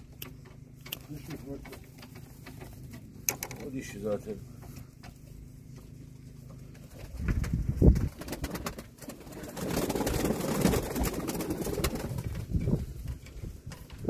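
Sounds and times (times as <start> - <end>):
rustling and clicking handling noise: 0.0 - 9.2, 11.7 - 14.0
pigeons cooing: 8.1 - 12.8.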